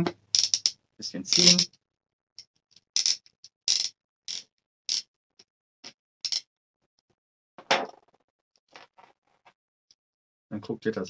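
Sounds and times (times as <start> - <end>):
spring being pulled: 0.3 - 0.7, 1.3 - 1.7
plastic magazine parts clicking: 0.4 - 0.7, 1.3 - 1.7.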